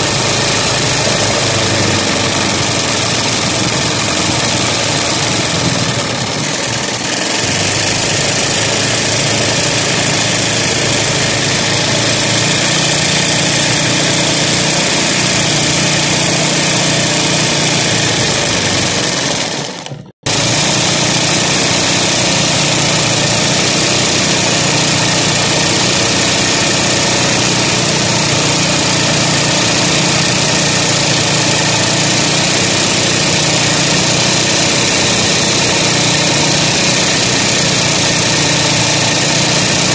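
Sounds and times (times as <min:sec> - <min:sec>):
sewing machine running fast: 0:00.0 - 0:39.9.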